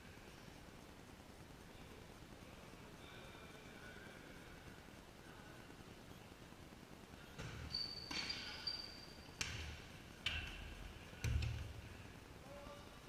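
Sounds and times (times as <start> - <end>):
ball kicked and bouncing: 7.4 - 8.4, 11.2 - 11.8
high held squeak: 7.7 - 9.3.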